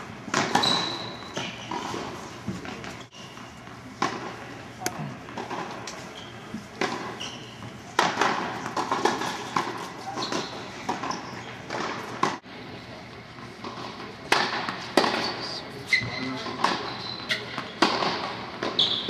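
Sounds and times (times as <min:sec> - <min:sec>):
tennis balls struck by rackets: 0:00.2 - 0:12.4, 0:13.6 - 0:15.4, 0:17.5 - 0:18.8
balls bouncing on hard court: 0:00.3 - 0:12.4.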